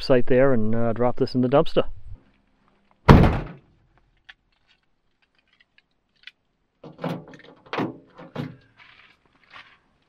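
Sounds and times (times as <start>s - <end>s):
van door shutting with thump: 3.1s - 3.6s.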